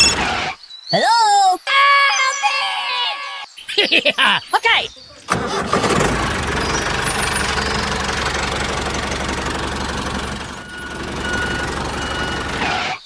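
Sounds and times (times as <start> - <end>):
small engine running: 5.3 - 12.9.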